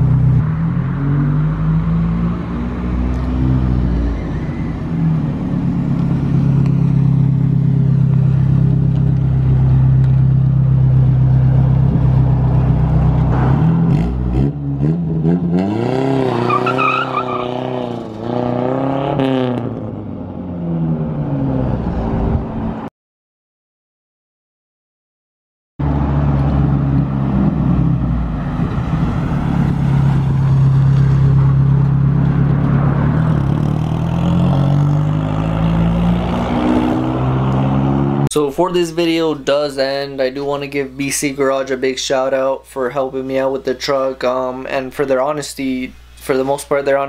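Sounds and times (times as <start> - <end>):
pickup truck engine idling and revving: 0.0 - 21.8, 25.8 - 38.3.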